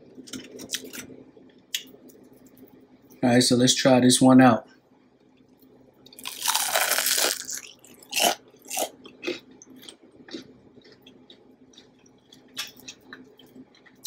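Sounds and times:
chewing with crunches: 6.1 - 14.0
crunchy bite into fried chicken: 6.2 - 10.5.

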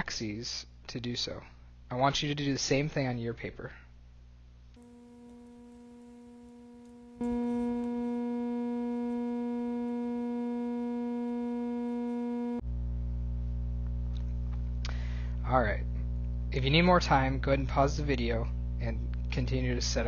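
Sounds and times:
held synthesizer tones: 4.8 - 12.6.

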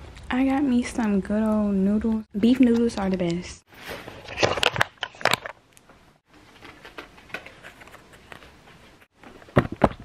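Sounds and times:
microphone handling clicks and rustles: 6.5 - 10.0.

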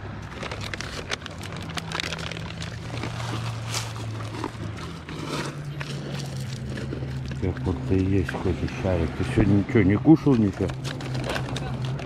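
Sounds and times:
pebbles shifting under paws: 0.1 - 8.8, 10.2 - 12.0
dog chewing food: 0.3 - 8.9.

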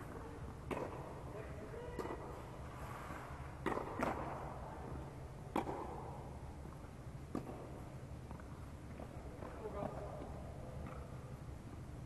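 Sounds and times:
low steady hum: 0.0 - 12.0
racket striking tennis ball: 0.6 - 1.1, 3.6 - 4.5, 5.5 - 6.0.

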